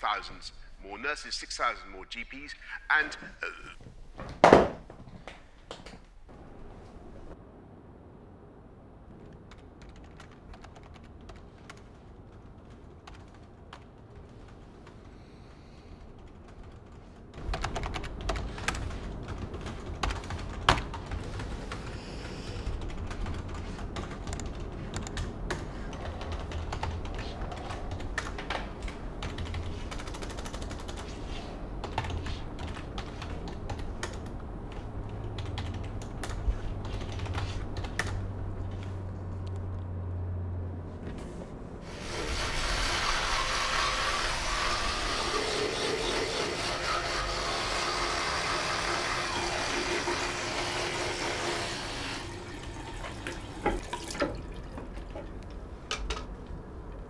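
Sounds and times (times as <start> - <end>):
computer keyboard typing: 9.2 - 15.1, 15.9 - 38.2
tap water running into basin: 42.0 - 45.4, 47.7 - 55.3.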